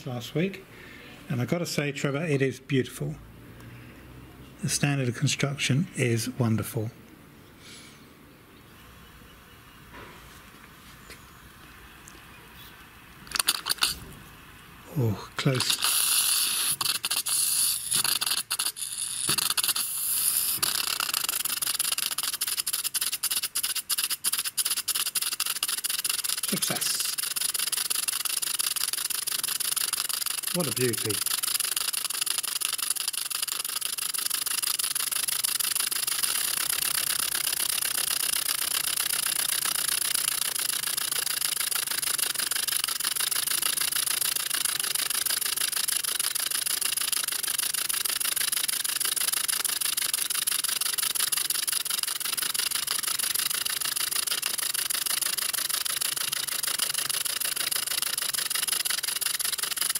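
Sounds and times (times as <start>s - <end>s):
model steam engine hissing: 15.6s - 59.9s.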